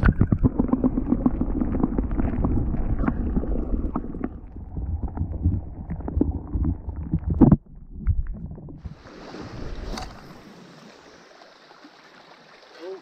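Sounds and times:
small underwater clicks: 0.0s - 8.7s
underwater rumble of surging water: 0.0s - 11.0s.

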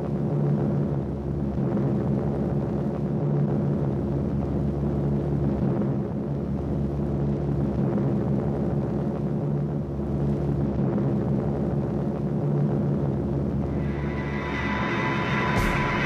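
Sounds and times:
piston aircraft engines droning: 13.2s - 16.0s.

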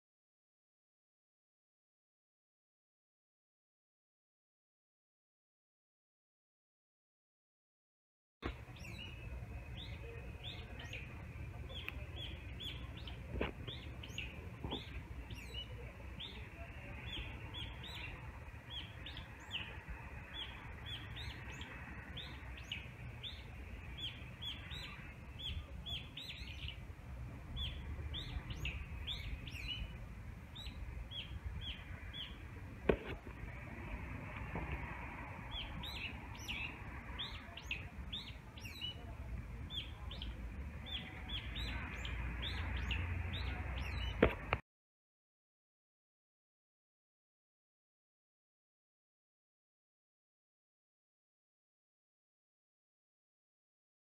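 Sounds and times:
small birds chirping: 8.4s - 44.6s.

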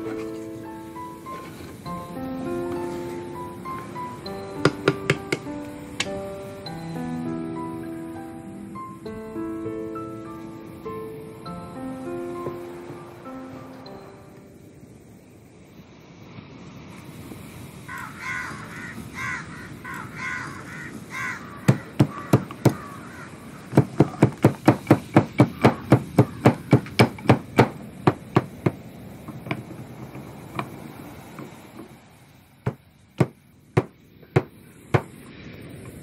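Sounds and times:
bird calling: 17.9s - 30.9s
pestle pounding in stone mortar: 21.7s - 22.8s, 23.7s - 28.8s, 32.7s - 35.1s.

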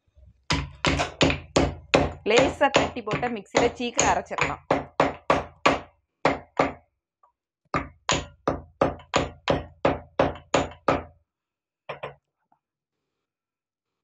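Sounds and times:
pestle pounding in stone mortar: 0.5s - 6.8s, 7.8s - 11.1s.

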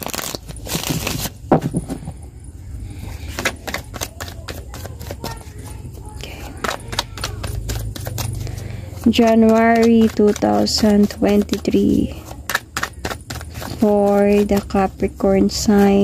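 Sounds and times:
plastic bag rustling: 0.0s - 1.9s
cards shuffling: 0.0s - 2.0s, 3.0s - 16.0s.

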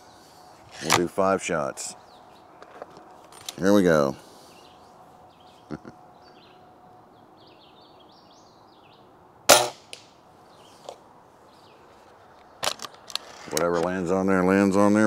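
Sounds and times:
air rifle shot: 9.5s - 10.0s.

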